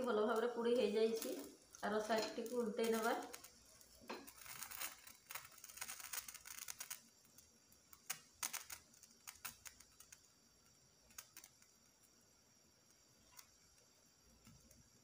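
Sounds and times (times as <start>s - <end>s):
eggplant skin crackling and ticking: 0.0s - 15.0s.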